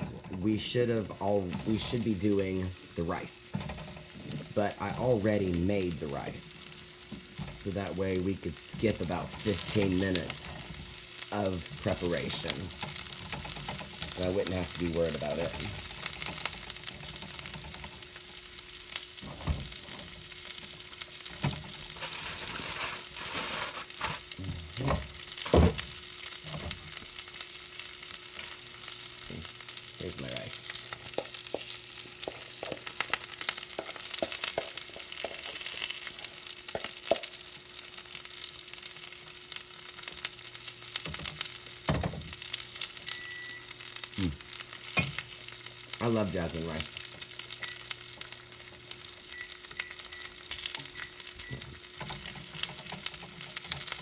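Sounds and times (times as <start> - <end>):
zucchini sizzling in frying pan: 0.0 - 54.0.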